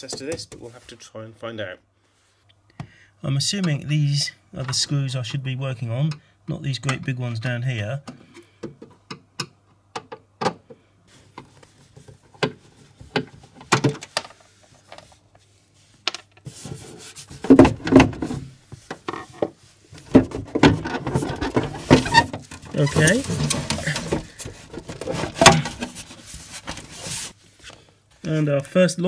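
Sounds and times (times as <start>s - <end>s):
plastic cover scraping: 11.2s - 27.8s.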